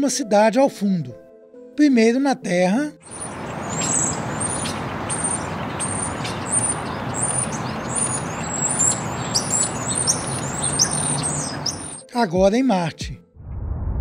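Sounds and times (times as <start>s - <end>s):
city noise: 3.0s - 12.0s
birds chirping: 3.0s - 12.1s.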